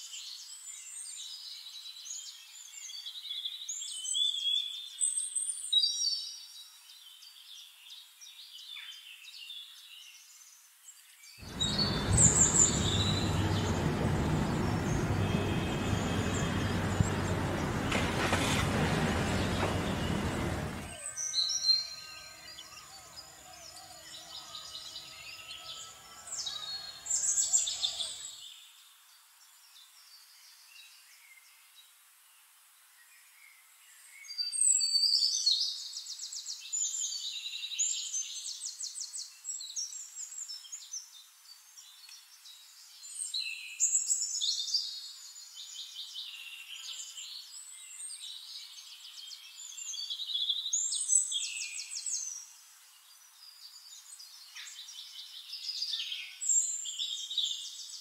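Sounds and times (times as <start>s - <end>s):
songbirds trilling: 11.4s - 28.3s.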